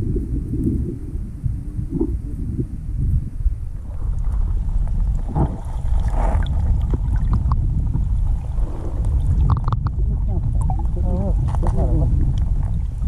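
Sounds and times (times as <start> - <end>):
muffled underwater creek rush: 0.0 - 13.0
small clicks and knocks: 9.5 - 10.0.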